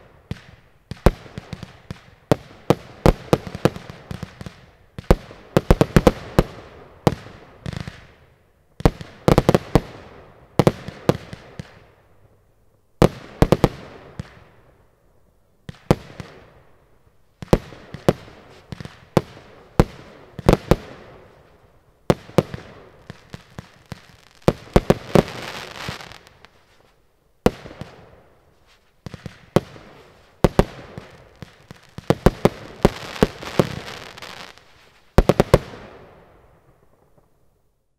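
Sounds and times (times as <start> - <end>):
fireworks launching and bursting: 0.0 - 8.2, 8.8 - 11.9, 13.0 - 14.5, 17.4 - 37.4
firework crackle: 17.4 - 37.4.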